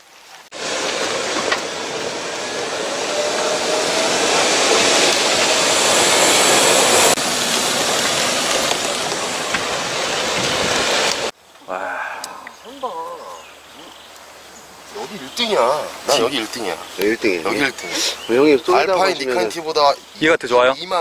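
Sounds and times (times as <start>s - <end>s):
loud steady rushing noise: 0.5s - 11.3s.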